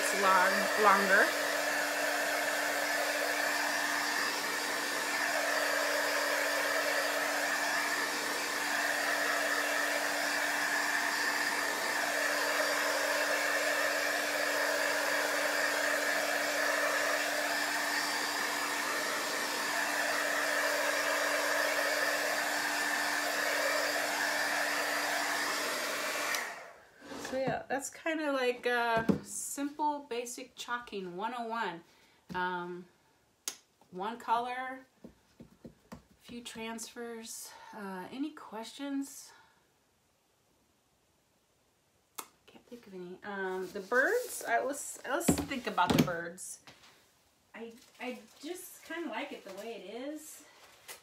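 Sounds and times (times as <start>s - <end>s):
heat gun blowing and humming: 0.0s - 26.8s.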